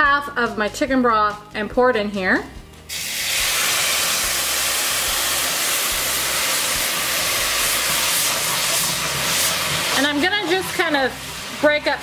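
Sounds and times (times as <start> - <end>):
broth sizzling in hot pan: 2.9 - 12.0.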